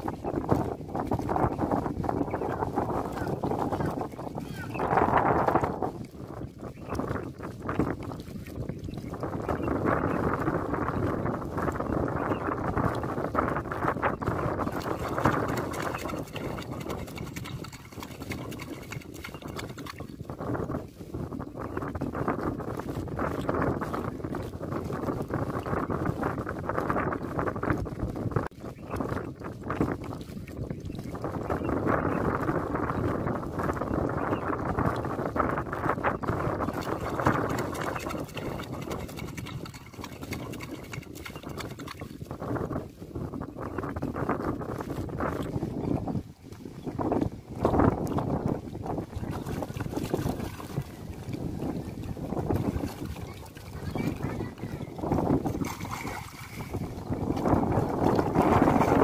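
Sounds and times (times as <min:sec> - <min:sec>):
fish splashing in water: 0:14.6 - 0:20.2, 0:36.6 - 0:42.3, 0:49.1 - 0:59.0.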